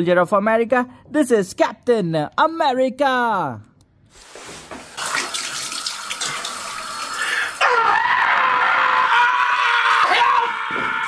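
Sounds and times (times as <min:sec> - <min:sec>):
tap water splashing into sink: 0:04.7 - 0:07.1
man screaming: 0:07.6 - 0:11.0.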